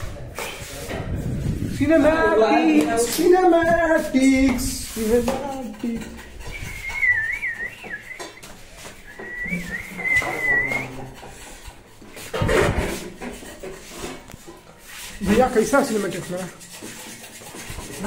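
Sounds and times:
person whistling: 6.2 - 11.1.

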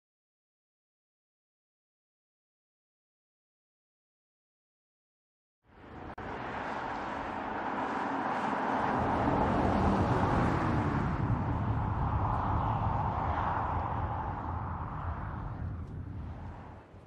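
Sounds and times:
car engine and tyre noise: 5.7 - 17.0.

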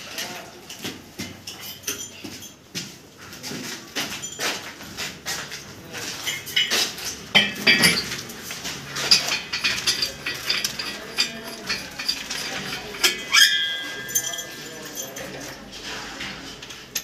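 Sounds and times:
metallic clinks and knocks: 1.4 - 2.6, 6.2 - 17.0.

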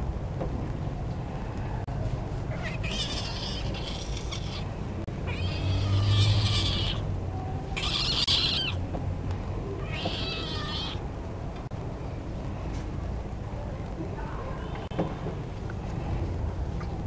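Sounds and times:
kitten meowing: 5.3 - 7.0, 7.8 - 8.8, 9.8 - 11.0.

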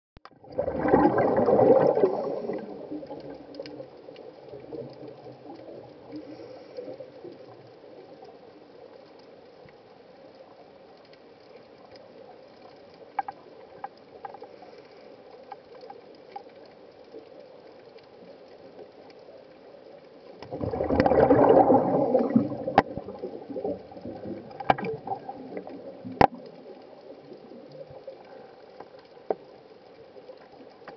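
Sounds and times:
air bubbles gurgling underwater: 0.3 - 8.2, 20.3 - 29.0
faint underwater hiss: 0.8 - 30.9.

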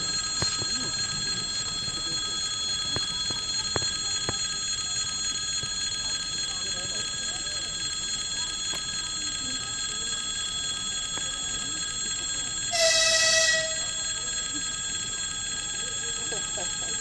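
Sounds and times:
electric train approaching: 0.0 - 17.0
railway crossing bell ringing: 0.0 - 17.0
train horn blast: 12.7 - 13.9.

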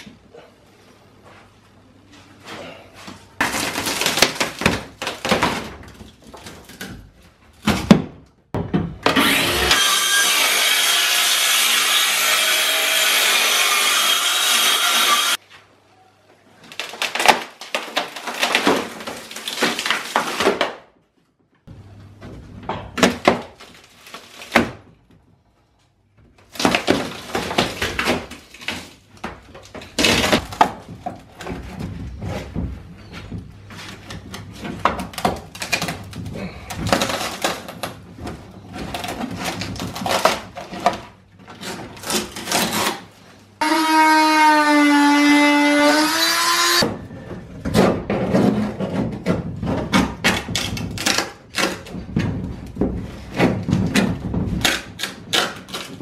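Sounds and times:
rotten boards cracking and splintering: 34.2 - 42.9.

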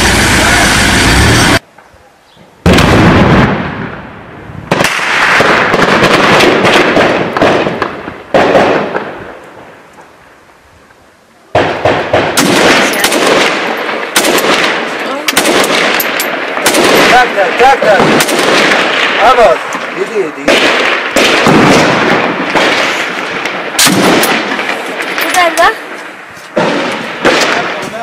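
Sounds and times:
heavy booms with rolling echo: 0.0 - 1.6, 2.6 - 9.8, 11.5 - 28.0
automatic rifle shots: 4.7 - 9.0, 11.6 - 19.5, 20.4 - 25.6.

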